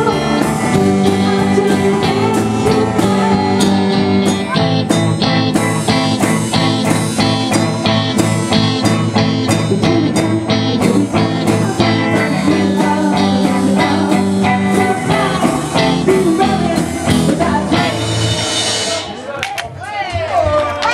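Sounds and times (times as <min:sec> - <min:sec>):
woman singing: 0:00.0 - 0:04.3, 0:09.8 - 0:18.2
live rock band playing: 0:00.0 - 0:19.4.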